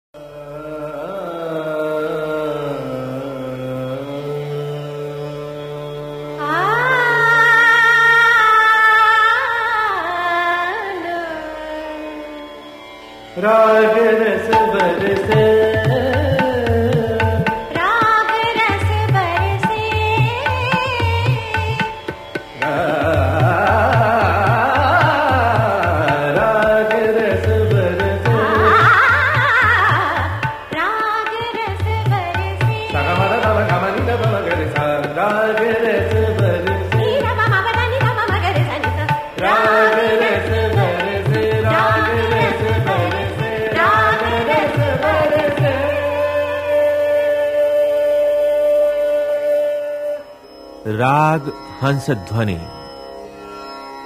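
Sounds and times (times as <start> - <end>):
indian classical melody: 0.2 - 54.0
tabla strokes: 14.5 - 45.8.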